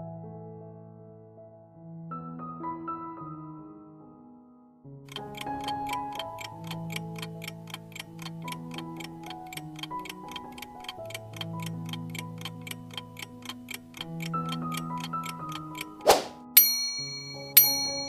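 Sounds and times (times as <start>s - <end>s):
background music with held notes: 5.1s - 18.0s
clock ticking: 5.1s - 18.0s.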